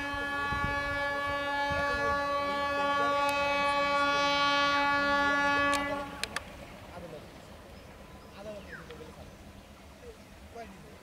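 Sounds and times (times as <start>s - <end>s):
locomotive horn blast: 0.0s - 6.4s
train rumbling: 0.0s - 7.1s.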